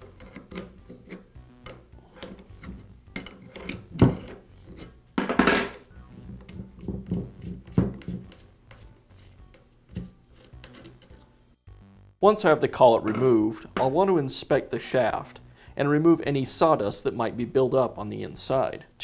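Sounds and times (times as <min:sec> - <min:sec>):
wrenches clinking on metal: 0:02.1 - 0:05.8.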